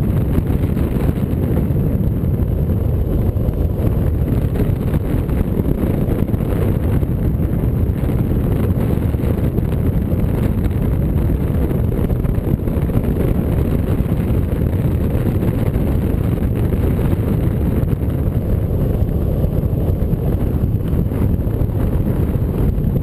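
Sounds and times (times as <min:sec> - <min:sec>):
wind rumbling on microphone: 0:00.0 - 0:23.0.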